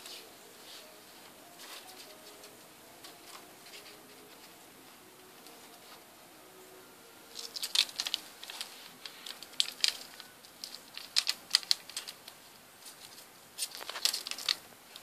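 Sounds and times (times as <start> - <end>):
hamster scrabbling on paper and plastic: 7.4 - 15.0.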